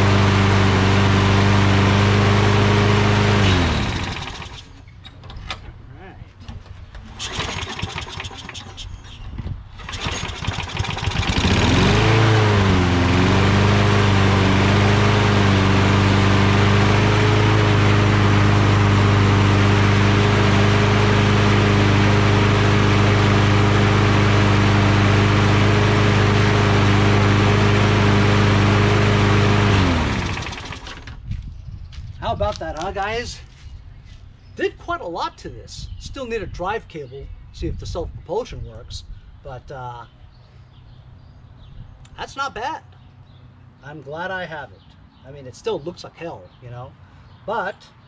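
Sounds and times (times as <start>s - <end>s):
lawn mower engine running: 0.0s - 5.4s, 6.6s - 8.9s, 9.7s - 31.2s.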